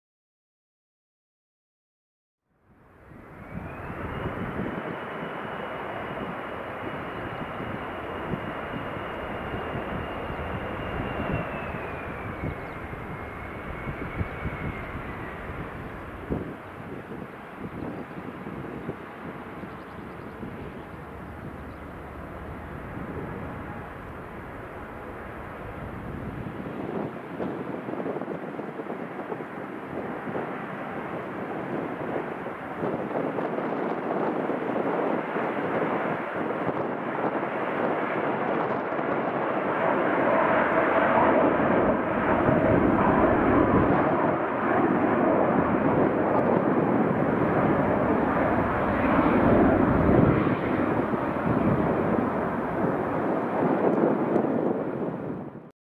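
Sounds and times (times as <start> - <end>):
distant jet engines roaring: 2.6 - 55.7.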